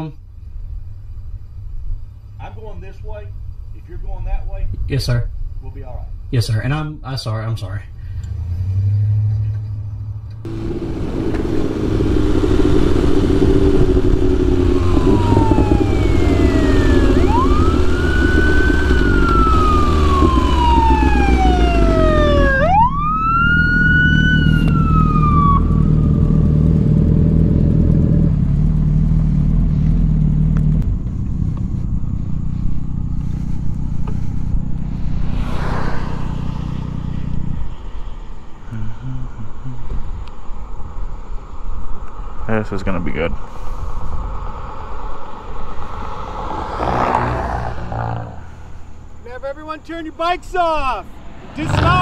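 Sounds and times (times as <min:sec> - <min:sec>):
motorcycle engine running: 0:10.5 - 0:22.7, 0:24.1 - 0:37.9
police siren wailing: 0:13.4 - 0:26.5.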